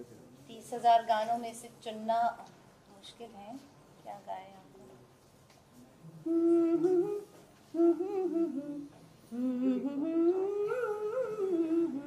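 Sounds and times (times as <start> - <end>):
woman humming: 6.2 - 12.0.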